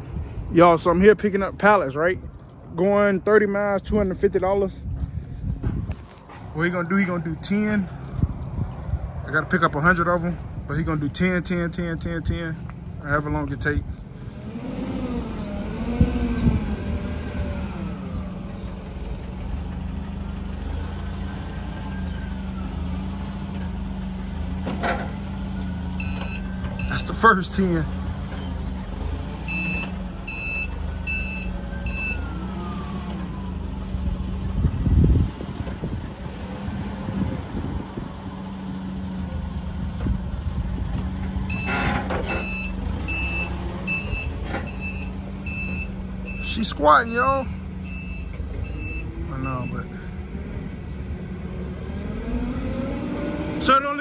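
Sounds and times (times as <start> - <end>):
forklift engine running: 13.8 - 53.5
reverse alarm beeping: 26.0 - 27.2, 29.4 - 33.1, 41.5 - 46.7, 47.8 - 49.9.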